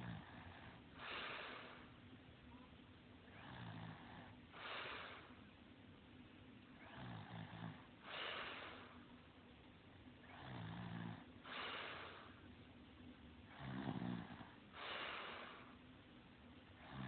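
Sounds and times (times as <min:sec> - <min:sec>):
person snoring: 0:06.8 - 0:08.8, 0:10.3 - 0:11.8, 0:13.5 - 0:15.6, 0:16.8 - 0:17.0.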